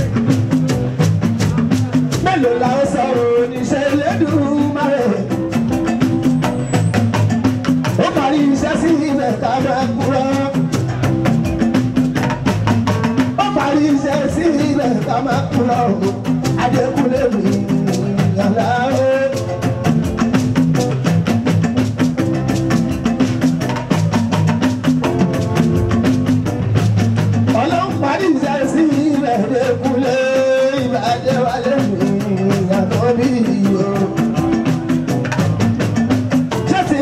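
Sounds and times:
fast dense percussion: 0.0s - 37.0s
pitched instrumental lines: 0.0s - 37.0s
person singing: 1.9s - 5.5s, 13.4s - 19.8s, 27.5s - 35.2s.

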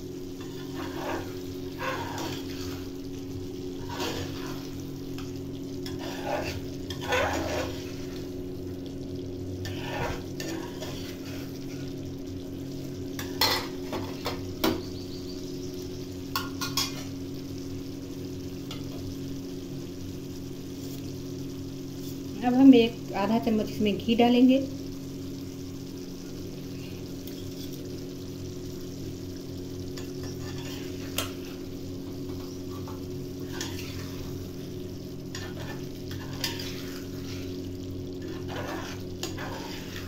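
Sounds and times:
soft sizzle: 0.0s - 40.0s
steady low hum: 0.0s - 40.0s
spoon scraping metal pan: 0.4s - 2.9s, 3.8s - 4.8s, 5.8s - 8.2s, 9.6s - 11.8s, 30.0s - 31.6s, 33.4s - 34.4s, 35.3s - 37.6s, 38.2s - 40.0s.

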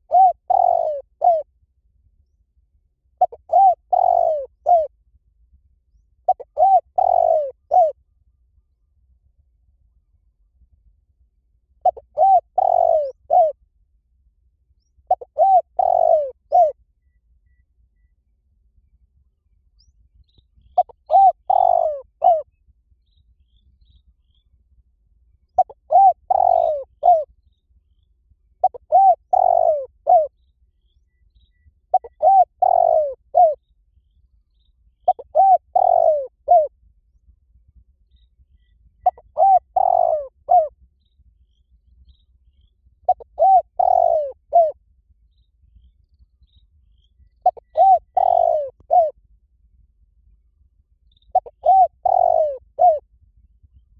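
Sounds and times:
dove cooing: 0.0s - 1.5s, 3.2s - 4.9s, 6.3s - 8.0s, 11.8s - 13.6s, 15.1s - 16.8s, 20.8s - 22.5s, 25.6s - 27.3s, 28.6s - 30.3s, 31.9s - 33.6s, 35.0s - 36.7s, 39.0s - 40.7s, 43.1s - 44.8s, 47.4s - 49.2s, 51.3s - 53.0s.

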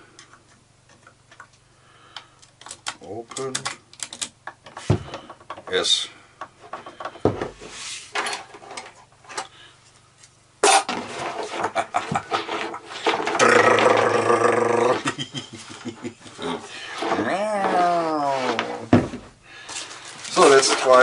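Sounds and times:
clicks and knocks of handling: 0.1s - 5.8s.

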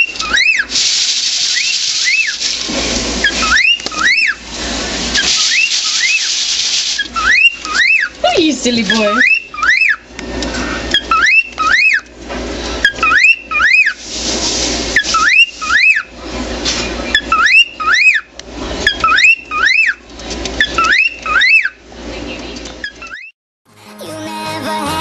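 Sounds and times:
cockatiel whistled chirps: 0.0s - 0.7s, 1.5s - 2.4s, 3.2s - 4.4s, 5.2s - 6.3s, 7.0s - 8.1s, 8.9s - 10.0s, 10.9s - 12.0s, 12.8s - 14.0s, 15.0s - 16.1s, 17.1s - 18.3s, 18.9s - 20.0s, 20.6s - 21.8s, 22.8s - 23.3s
scratchy hissing noise: 0.6s - 7.5s, 14.0s - 15.6s.

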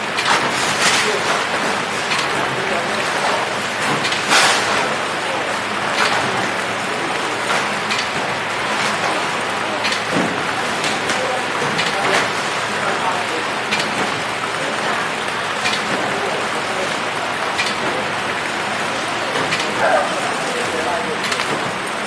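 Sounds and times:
wrapping machine whirring: 0.0s - 22.0s
machine clicks: 13.7s - 14.2s, 17.5s - 18.0s, 21.2s - 21.8s.

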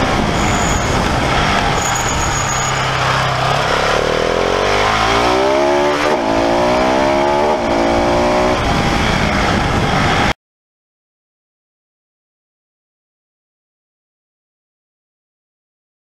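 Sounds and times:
motorcycle engine accelerating: 0.0s - 10.4s
wind rush on microphone: 0.0s - 10.4s.

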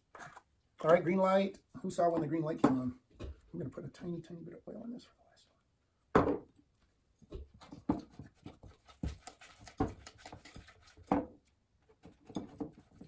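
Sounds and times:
whisk scraping glass bowl: 9.0s - 11.1s.

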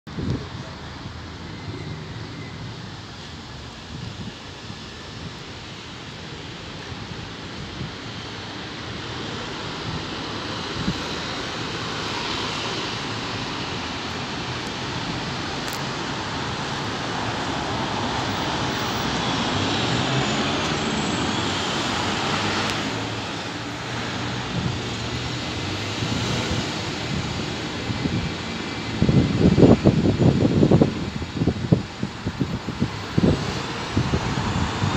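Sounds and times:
road traffic passing: 0.1s - 34.9s
bus engine running: 12.7s - 34.9s.

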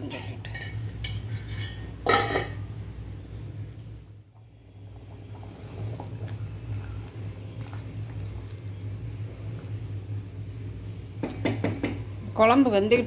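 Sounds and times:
steady low hum: 0.0s - 13.0s
stew simmering in a pot: 0.0s - 13.0s
wooden spoon stirring: 5.4s - 8.8s
spoon knocking against pot: 11.2s - 12.0s.

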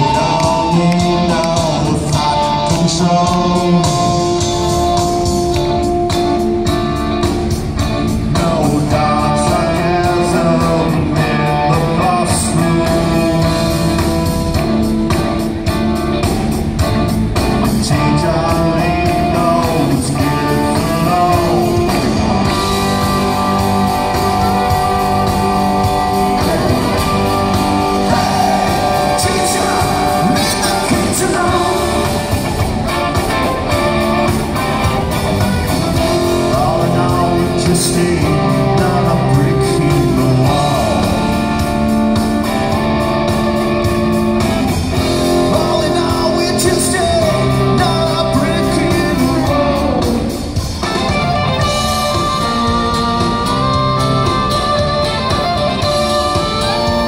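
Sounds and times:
live rock band playing: 0.0s - 57.0s
fiddle melody: 50.8s - 57.0s.

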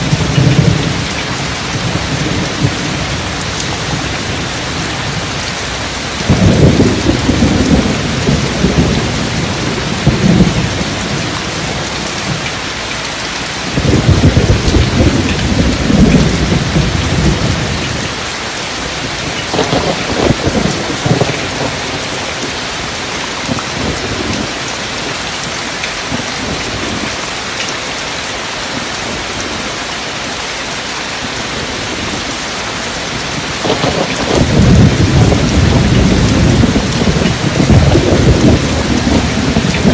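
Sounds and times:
steady rain: 0.0s - 39.9s
low thunder rolls: 6.2s - 11.8s, 13.7s - 18.0s, 19.2s - 22.3s, 33.4s - 39.9s.

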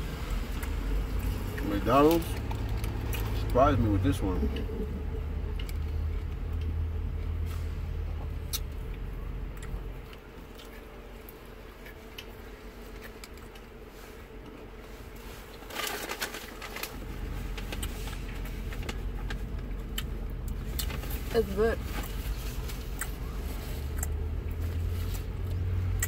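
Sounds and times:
low hum: 0.0s - 26.0s
people chewing: 22.0s - 26.0s.

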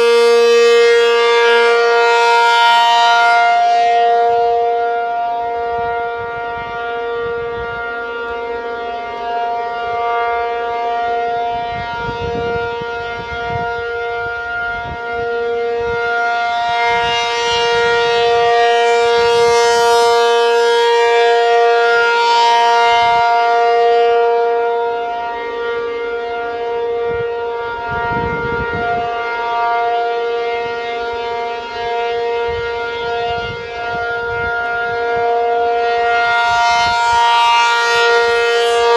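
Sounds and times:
rotating warning siren: 0.0s - 38.9s.

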